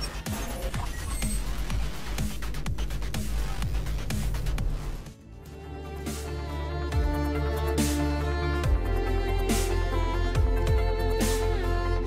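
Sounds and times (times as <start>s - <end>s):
electronic music kick drum beat: 0.0s - 5.2s, 6.1s - 12.0s.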